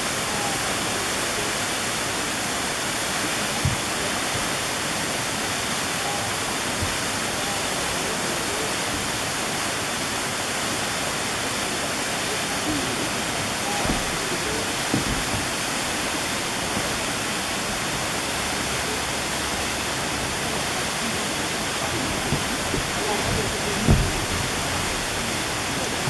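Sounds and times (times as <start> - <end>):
waterfall rushing: 0.0 - 26.0
low thump: 13.7 - 17.0, 21.9 - 26.0.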